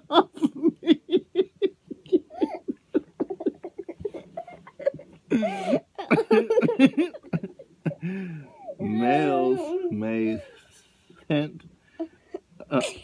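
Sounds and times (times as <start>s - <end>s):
child giggling: 0.1s - 8.0s
man laughing: 0.2s - 8.2s.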